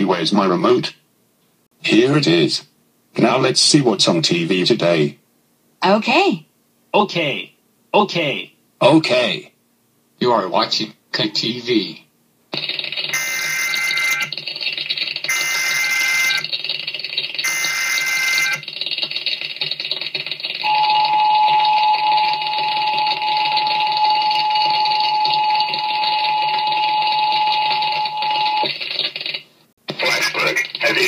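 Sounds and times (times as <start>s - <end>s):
screeching data bursts: 12.7s - 18.8s, 20.4s - 28.8s
steady attention tone: 20.5s - 28.7s.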